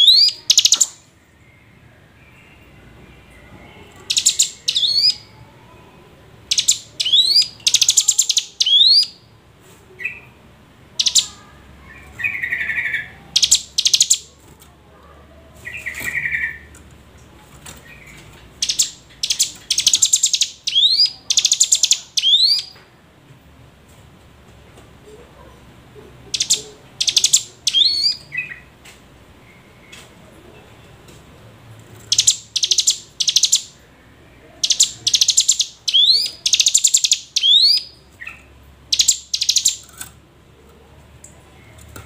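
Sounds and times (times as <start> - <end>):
bird chattering trills: 0.0 - 1.0, 4.0 - 5.3, 6.5 - 9.2, 11.0 - 14.3, 18.6 - 22.7, 26.3 - 28.6, 32.1 - 33.8, 34.6 - 39.9
bird singing buzzing rattles: 38.9 - 39.9.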